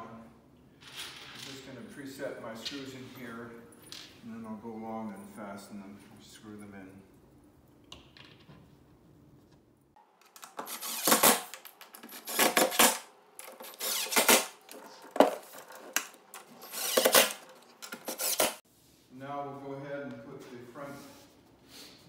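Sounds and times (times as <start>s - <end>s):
impact driver rattling: 16.5s - 18.6s.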